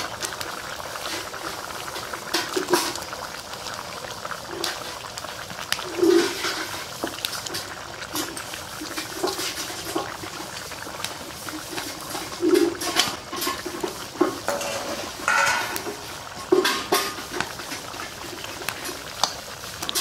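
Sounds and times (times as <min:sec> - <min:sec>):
curry gravy bubbling: 0:00.0 - 0:20.0
utensils clinking against pan: 0:12.3 - 0:17.5.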